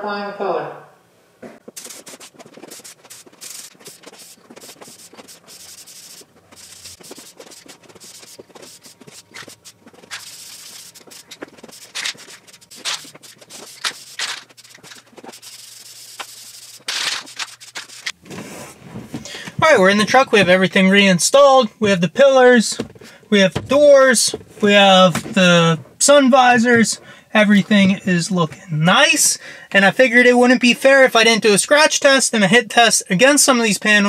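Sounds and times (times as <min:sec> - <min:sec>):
spray paint hissing: 0:01.6 - 0:18.2.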